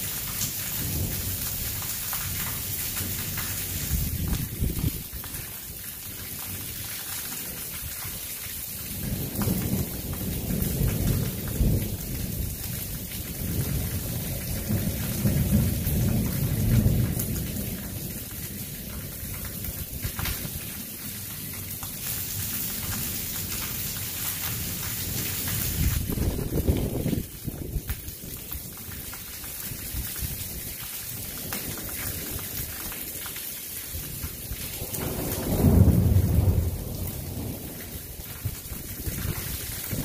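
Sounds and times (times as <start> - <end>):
rolling thunder rumble: 0.8 - 5.6, 8.8 - 21.4, 24.6 - 28.8, 33.9 - 40.0
heavy rain hissing: 8.3 - 40.0.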